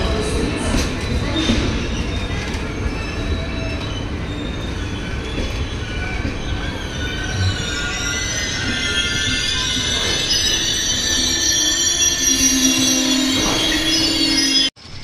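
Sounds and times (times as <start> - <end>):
train wheels rumbling on rail: 0.0 - 11.3
high wheel squeal: 1.2 - 14.8.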